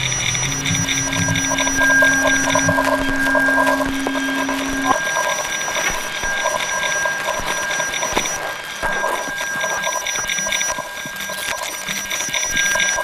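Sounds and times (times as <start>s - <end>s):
low hum: 0.0s - 9.2s
high held tones: 0.0s - 13.0s
rapid electronic beeping: 0.0s - 13.0s.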